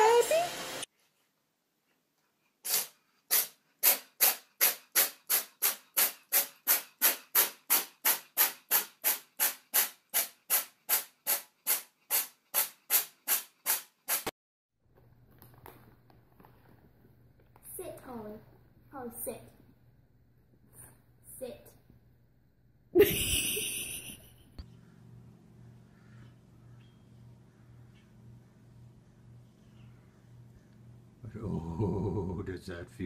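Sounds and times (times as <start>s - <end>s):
cat hissing: 2.6s - 14.2s.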